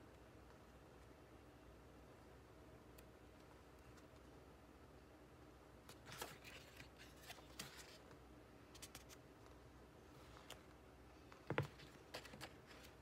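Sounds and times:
paper pages rustling and flipping: 0:05.9 - 0:08.1, 0:08.7 - 0:09.2, 0:11.5 - 0:13.0.

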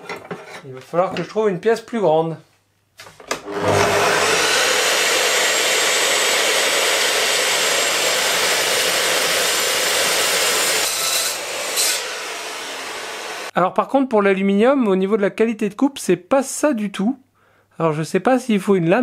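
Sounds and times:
metal cut-off saw cutting aluminium: 0:03.4 - 0:13.5.

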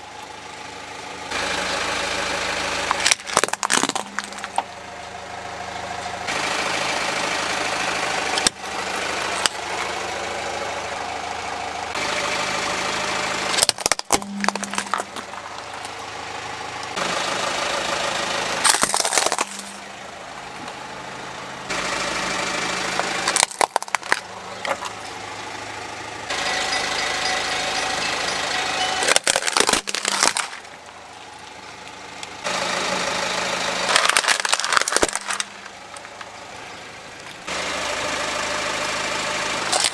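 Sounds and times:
car engine running slowly: 0:00.0 - 0:39.9
objects crunching under tyre: 0:02.8 - 0:04.8, 0:08.3 - 0:10.0, 0:13.5 - 0:16.2, 0:18.6 - 0:20.0, 0:23.0 - 0:25.5, 0:26.3 - 0:32.5, 0:33.8 - 0:37.5.

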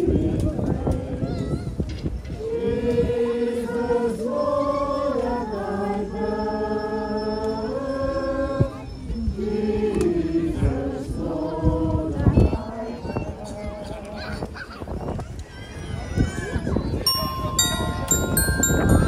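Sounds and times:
group singing a carol: 0:00.0 - 0:14.2.

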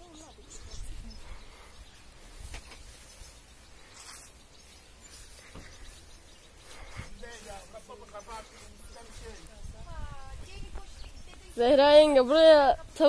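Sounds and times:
wind rumble on microphone: 0:08.8 - 0:13.0.

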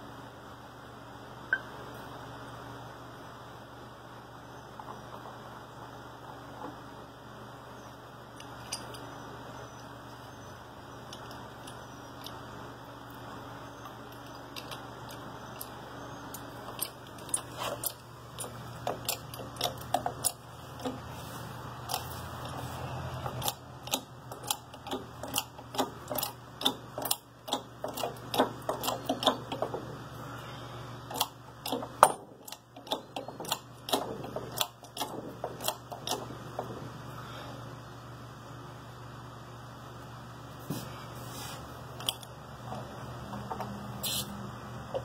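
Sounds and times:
metallic clicks of jack pump: 0:16.3 - 0:21.0, 0:23.2 - 0:29.9, 0:31.1 - 0:36.8, 0:42.0 - 0:44.3.

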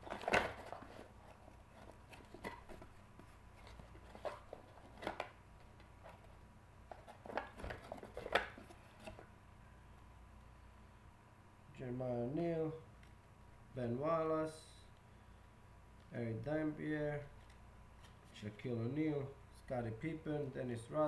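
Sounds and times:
trading cards tapping and rustling: 0:00.0 - 0:09.3.

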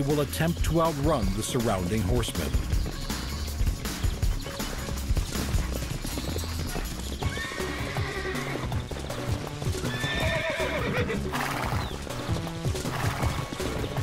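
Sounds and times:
background music: 0:00.0 - 0:14.0
galloping hoofbeats: 0:00.0 - 0:14.0
horses whinnying: 0:04.5 - 0:14.0.

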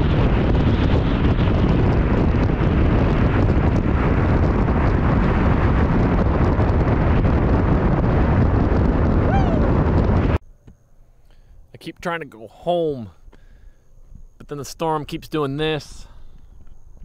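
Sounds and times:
strong wind blasting microphone: 0:00.0 - 0:10.4.

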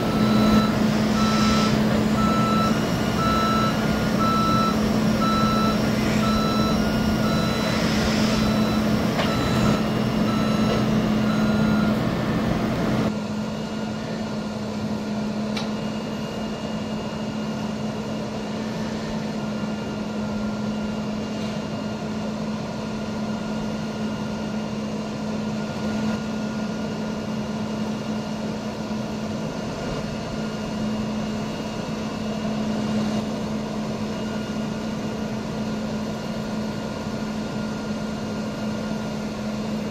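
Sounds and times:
back-up alarm beeping: 0:00.0 - 0:13.1
diesel engine running: 0:00.0 - 0:39.9.

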